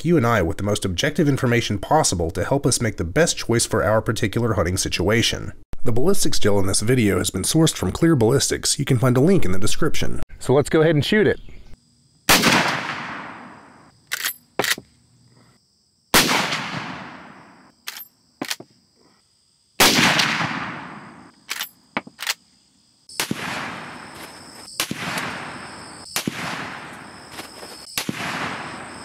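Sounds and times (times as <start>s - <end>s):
rifle shots with echo: 12.3s - 13.8s, 16.2s - 17.5s, 19.8s - 21.3s, 23.2s - 24.2s, 24.8s - 27.2s, 27.9s - 29.0s
rifle lever metallic clacks: 21.5s - 22.4s.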